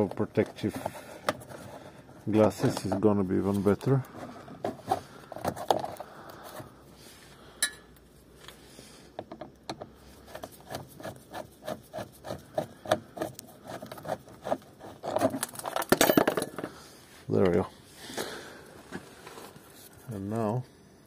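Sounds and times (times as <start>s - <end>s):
screwdriver scraping plastic: 10.3s - 15.8s.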